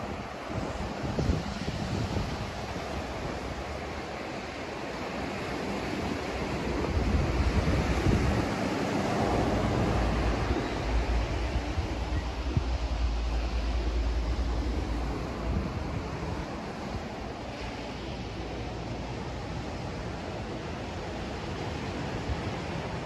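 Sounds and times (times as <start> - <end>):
ocean surf washing onto beach: 0.0 - 23.0
wind buffeting microphone: 0.0 - 23.0.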